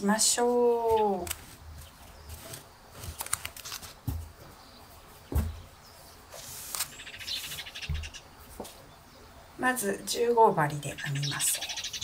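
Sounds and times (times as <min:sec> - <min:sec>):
soft knocks and taps: 0:05.3 - 0:05.7.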